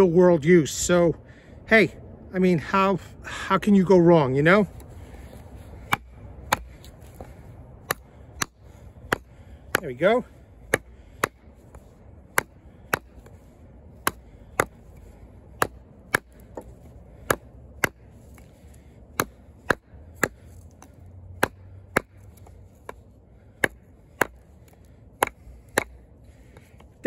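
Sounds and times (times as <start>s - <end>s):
knife chopping hard wood: 5.8s - 26.7s.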